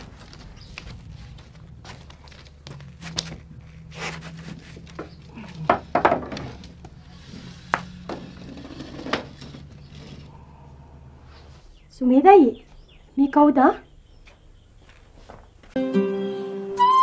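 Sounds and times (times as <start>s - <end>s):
footsteps: 0.0s - 8.7s, 14.2s - 15.8s
steady low hum: 0.0s - 13.2s
wooden bench knocks and creaks: 4.9s - 7.0s.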